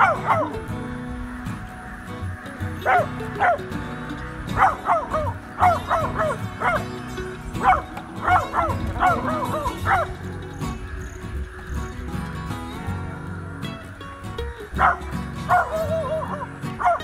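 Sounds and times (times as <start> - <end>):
dog barking: 0.0 - 0.6, 2.8 - 3.6, 4.6 - 6.9, 7.6 - 10.1, 14.8 - 17.0
background music: 0.0 - 17.0.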